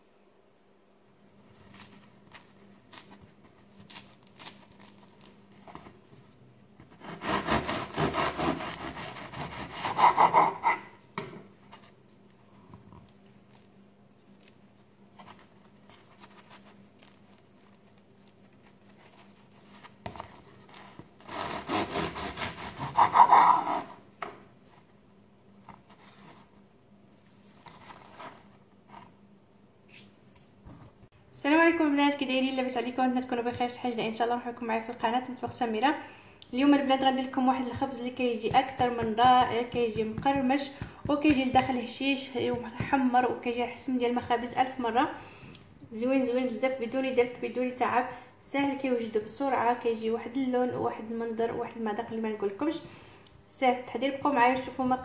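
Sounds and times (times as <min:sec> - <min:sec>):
bread knife sawing crusty loaf: 0:06.9 - 0:10.9, 0:21.2 - 0:24.0
bread crackling and tapping: 0:38.2 - 0:43.2.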